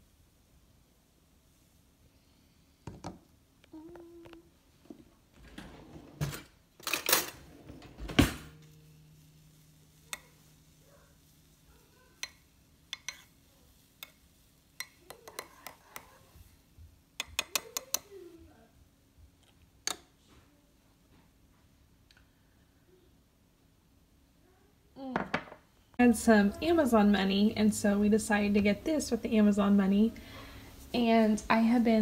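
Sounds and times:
spoon knocking on mug: 0:12.2 - 0:13.3, 0:14.8 - 0:16.2, 0:17.2 - 0:18.0.

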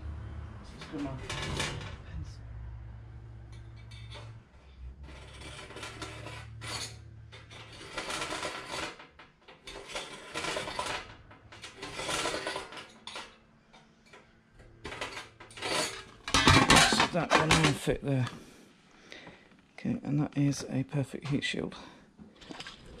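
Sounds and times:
metal sheet scraping and rattling: 0:00.6 - 0:02.2, 0:03.8 - 0:13.3, 0:14.8 - 0:18.0.

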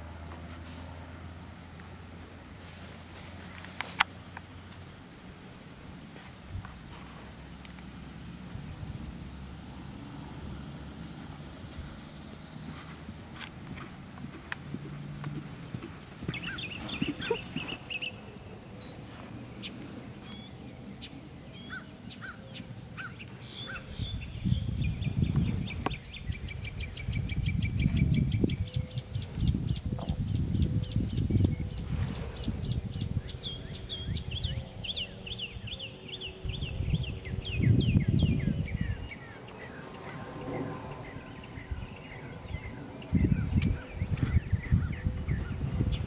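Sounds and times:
birds chirping: 0:00.0 - 0:05.6, 0:07.6 - 0:46.0
wind rumble on microphone: 0:05.9 - 0:18.3, 0:23.4 - 0:46.0.

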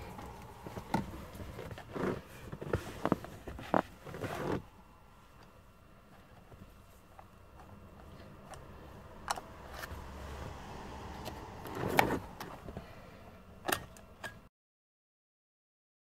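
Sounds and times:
low rumble: 0:00.0 - 0:02.4, 0:07.8 - 0:12.8.

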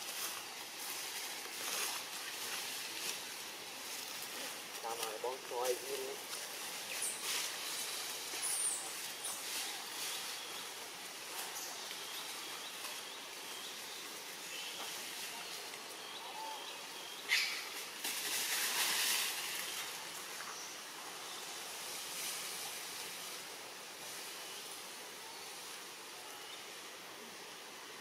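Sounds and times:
rustling in dry leaves: 0:00.0 - 0:28.0
steady high hiss: 0:00.0 - 0:28.0.

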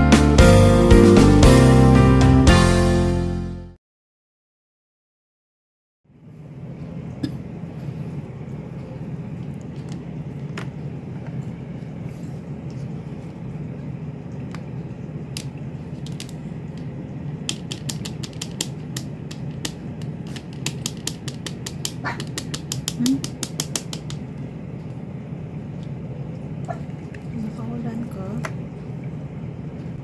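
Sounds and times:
plastic case clicking on plastic: 0:17.5 - 0:24.2.

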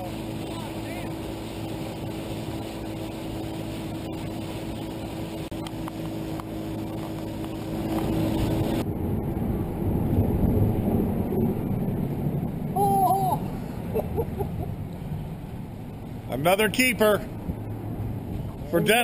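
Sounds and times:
outboard motor running: 0:00.0 - 0:08.8
wind and water rush: 0:00.0 - 0:19.0.

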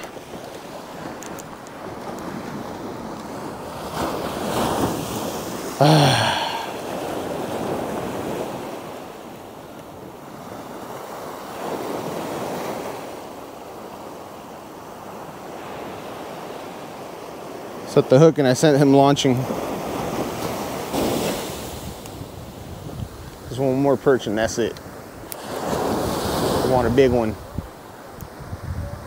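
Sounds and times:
surf washing on beach: 0:00.0 - 0:29.0
wind on microphone: 0:20.0 - 0:23.6, 0:25.6 - 0:29.0.

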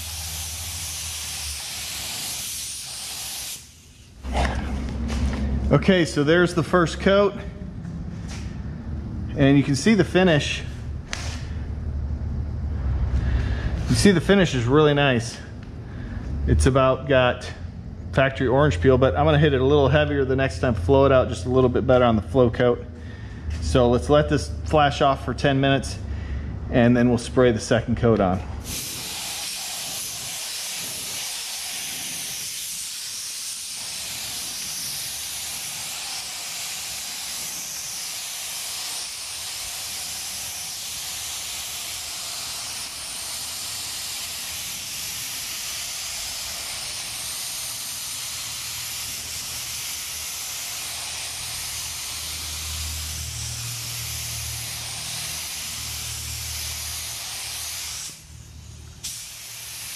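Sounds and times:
paint spray gun hissing: 0:00.0 - 0:05.8, 0:10.4 - 0:11.7, 0:28.6 - 0:59.9.

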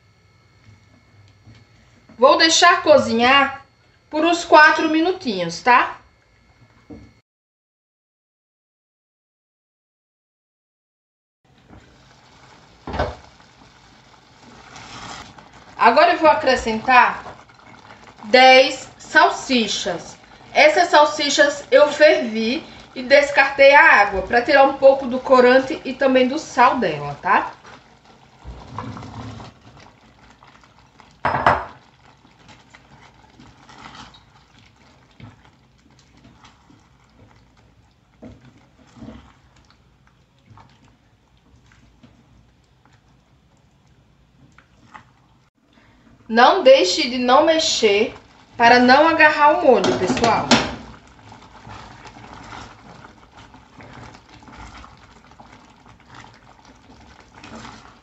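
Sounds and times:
sauce bubbling in a saucepan: 0:11.5 - 0:58.0
spoon stirring sauce: 0:31.8 - 0:45.2, 0:48.1 - 0:58.0.

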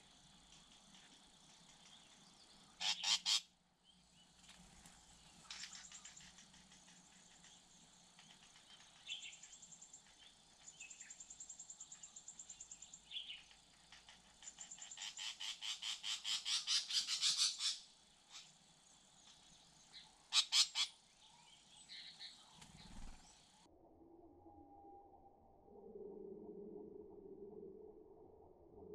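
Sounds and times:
animal trilled calls: 0:02.8 - 0:03.4, 0:20.3 - 0:20.9.

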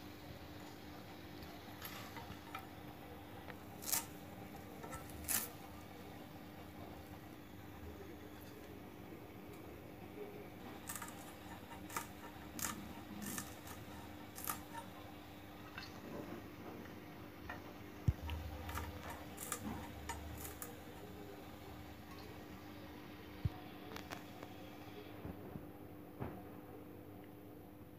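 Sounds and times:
faint hum: 0:00.0 - 0:27.9
chillies being sliced: 0:01.8 - 0:02.8, 0:03.5 - 0:05.9, 0:10.7 - 0:15.0, 0:18.1 - 0:22.0.

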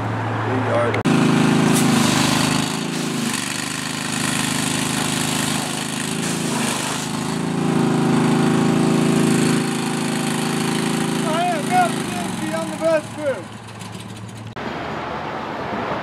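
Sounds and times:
pressure washer engine running: 0:01.1 - 0:14.6
water jet hissing: 0:01.4 - 0:13.2.

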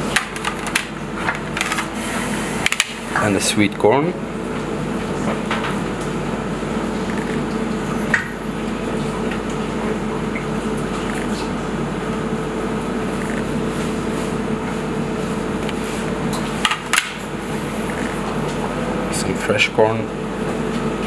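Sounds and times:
kitchen ventilation hum: 0:00.0 - 0:21.0.

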